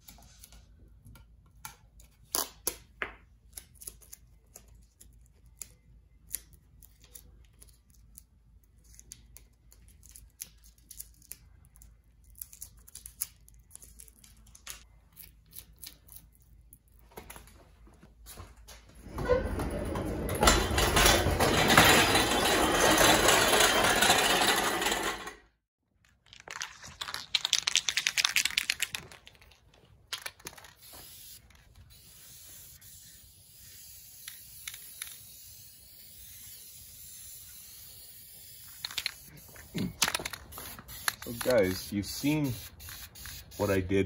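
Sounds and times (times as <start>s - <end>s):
casters rolling on concrete: 19.0s - 30.9s
spray can hissing: 30.7s - 43.8s.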